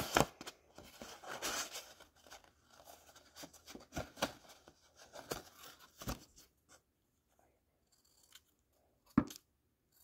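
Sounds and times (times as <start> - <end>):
paper rustling: 0.0 - 6.5.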